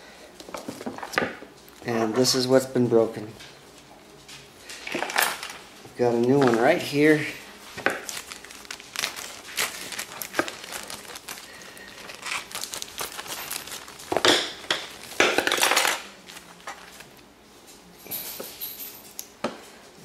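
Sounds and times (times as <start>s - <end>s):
plastic bag crinkling: 6.2s - 17.2s
scissors cutting plastic: 7.9s - 16.9s.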